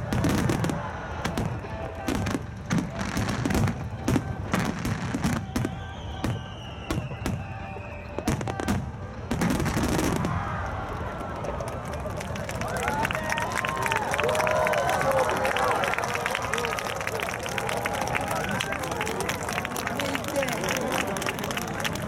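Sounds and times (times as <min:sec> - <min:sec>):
music playing: 0:00.0 - 0:10.2
fireworks booming and crackling: 0:00.0 - 0:11.6.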